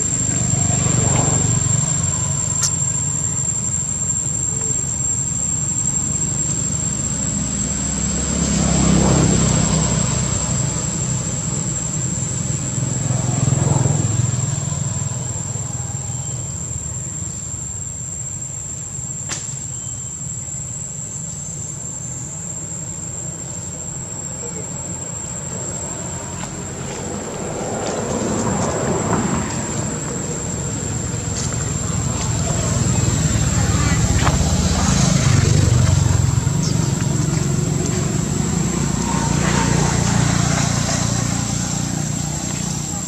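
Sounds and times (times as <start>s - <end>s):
vehicles passing: 0.0s - 18.2s, 20.9s - 43.0s
high-pitched insect drone: 0.0s - 43.0s.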